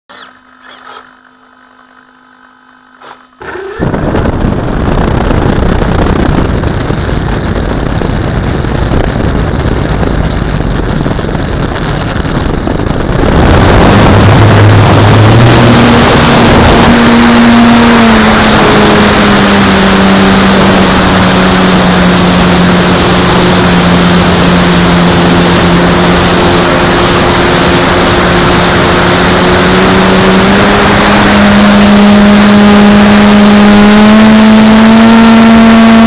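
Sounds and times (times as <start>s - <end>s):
model plane motor and propeller: 0.1s - 3.4s, 18.6s - 36.0s
faint steady hum: 0.1s - 36.0s.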